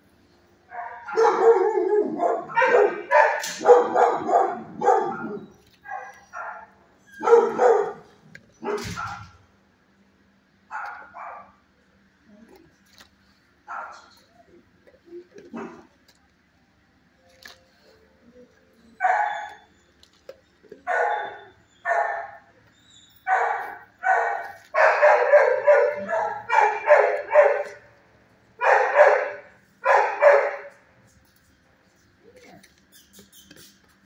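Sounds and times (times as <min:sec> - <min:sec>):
dogs barking: 0:00.7 - 0:09.4, 0:10.7 - 0:11.6, 0:13.6 - 0:14.4, 0:15.4 - 0:16.0, 0:18.8 - 0:19.8, 0:20.6 - 0:28.0, 0:28.6 - 0:30.8.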